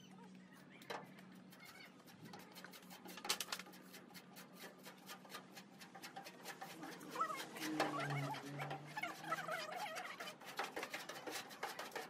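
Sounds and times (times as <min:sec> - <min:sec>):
paintbrush scratching on metal: 0:00.5 - 0:12.0.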